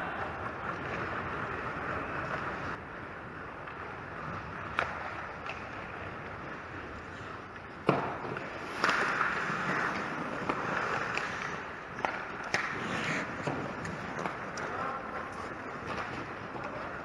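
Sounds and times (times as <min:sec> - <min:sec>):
skates scraping ice: 0:00.0 - 0:17.0
stick and puck clacks: 0:03.6 - 0:17.0.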